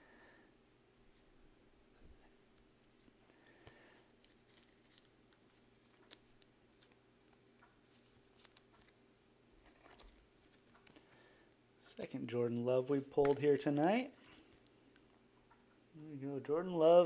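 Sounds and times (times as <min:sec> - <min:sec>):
faint steady hum: 0:00.0 - 0:17.0
clicks and rustles of cards: 0:03.0 - 0:09.0, 0:09.6 - 0:11.2, 0:13.0 - 0:14.8.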